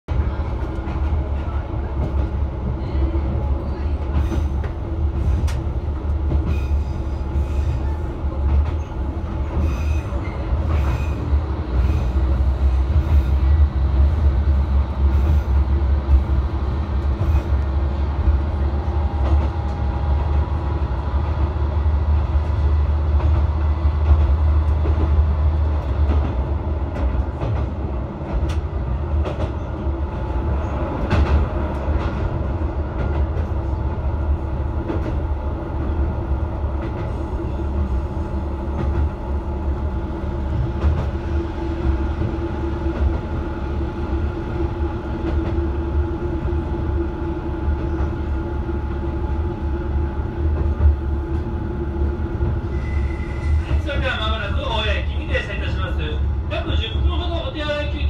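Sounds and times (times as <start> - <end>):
railcar engine drone: 0.1 - 58.0
wheel and rail rumble: 0.1 - 58.0.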